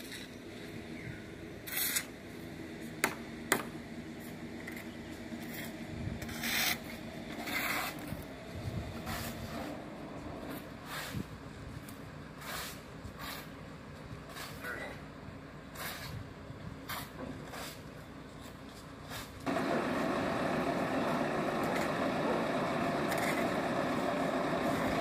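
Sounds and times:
shovels scraping concrete: 0.0s - 0.4s, 1.6s - 2.2s, 4.6s - 8.3s, 9.0s - 9.8s, 10.5s - 11.3s, 12.4s - 13.6s, 14.3s - 15.0s, 15.7s - 16.2s, 16.8s - 18.0s, 22.8s - 25.0s.

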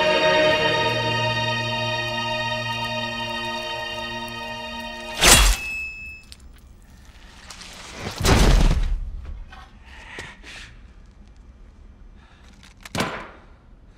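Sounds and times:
held synth chord: 0.0s - 5.6s.

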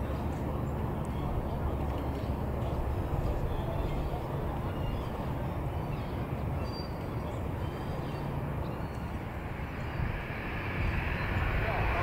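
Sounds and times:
jet engines rumbling: 7.4s - 12.0s
high hiss: 9.0s - 12.0s.

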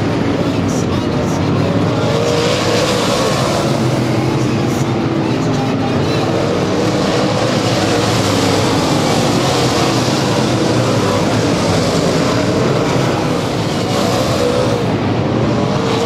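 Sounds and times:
race car engines running hard: 0.0s - 16.0s.

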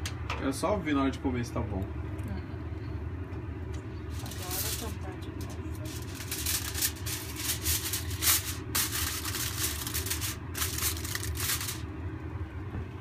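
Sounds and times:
low steady hum: 0.0s - 13.0s
aluminium foil crinkling: 4.1s - 11.8s.

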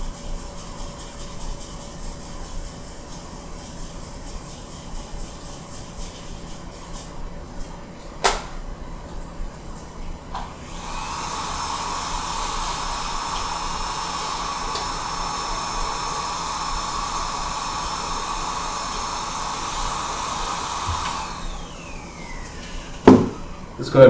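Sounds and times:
air blowing from nozzle: 10.6s - 23.0s.

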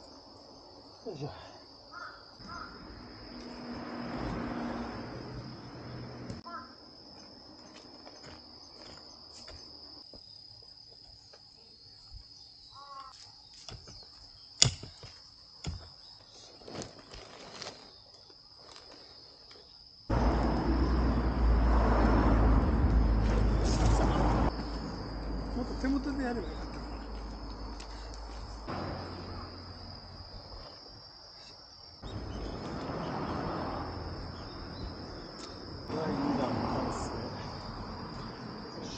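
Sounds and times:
crickets trilling: 0.0s - 38.9s
hoe chopping into soil: 14.6s - 15.9s.

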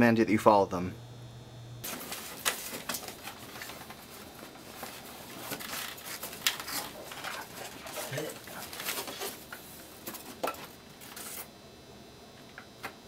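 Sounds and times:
plastic wrapping crinkling: 1.8s - 11.4s.

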